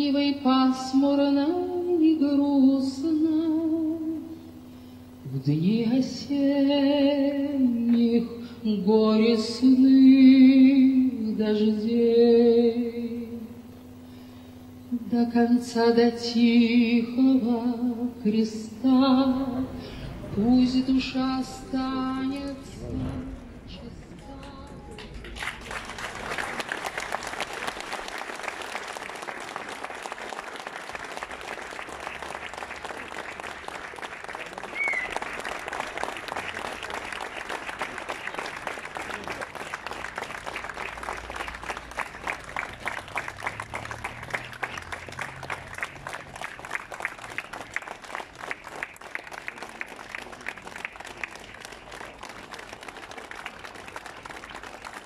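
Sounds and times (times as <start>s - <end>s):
crowd applauding: 19.5s - 55.0s.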